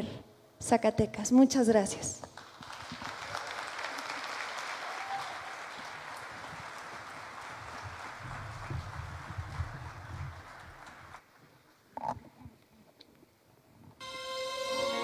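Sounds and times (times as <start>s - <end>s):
audience applauding: 2.4s - 11.3s.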